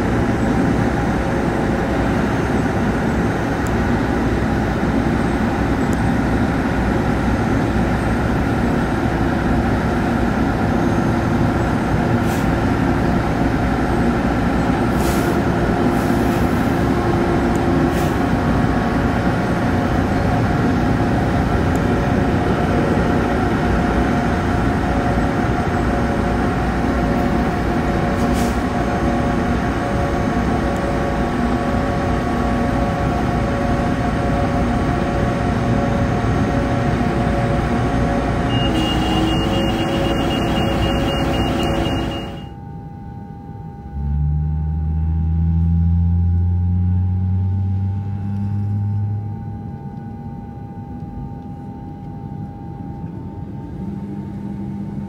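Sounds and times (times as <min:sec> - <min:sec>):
tug engine drone with whine: 0:00.0 - 0:55.0
rapid high beeping: 0:38.5 - 0:42.5
quiet hum with low rising tones: 0:41.1 - 0:55.0.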